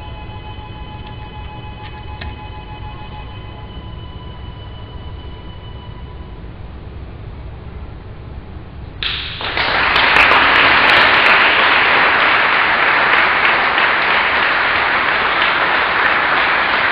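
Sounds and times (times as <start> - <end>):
audience applause: 9.0 - 16.9.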